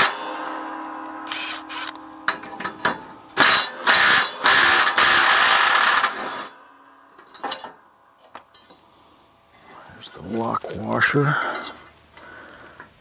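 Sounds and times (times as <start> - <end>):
impact wrench hammering: 0.0 - 7.8
light metallic clinks: 7.1 - 8.9.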